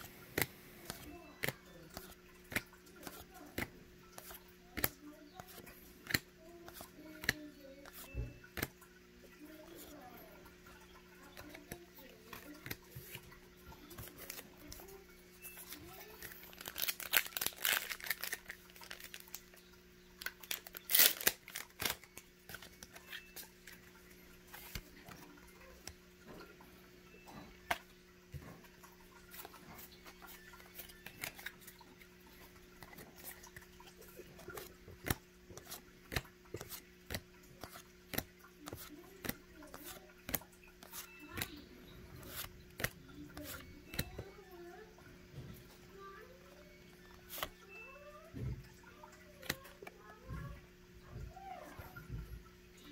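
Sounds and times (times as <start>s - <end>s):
cards clicking and tapping: 0.0s - 8.8s, 11.2s - 14.9s, 15.5s - 19.6s, 20.2s - 23.8s, 24.4s - 26.4s, 29.3s - 31.7s, 32.8s - 41.6s, 42.2s - 44.4s, 47.1s - 47.6s, 49.4s - 50.5s
faint steady hum: 0.0s - 52.9s
wrapper crackle: 15.7s - 19.6s, 20.2s - 23.0s
foil pack tearing and crinkling: 16.1s - 19.4s, 20.2s - 22.1s.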